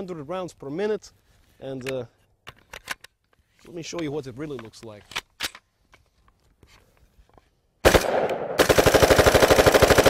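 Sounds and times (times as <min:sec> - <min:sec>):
rifle shots in rapid string: 0:07.8 - 0:10.0.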